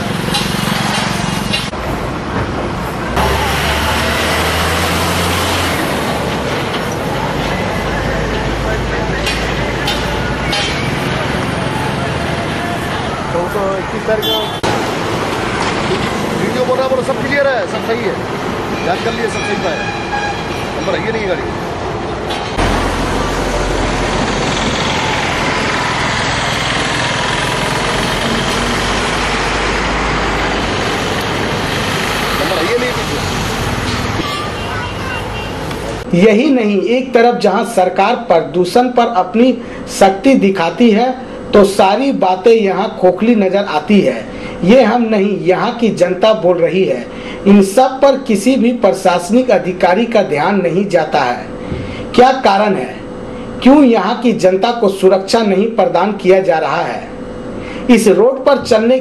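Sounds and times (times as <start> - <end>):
motorcycles: 0.0 - 13.4, 22.5 - 36.1
truck engine hum: 0.0 - 18.9, 20.6 - 36.3
road and traffic noise: 0.0 - 59.0.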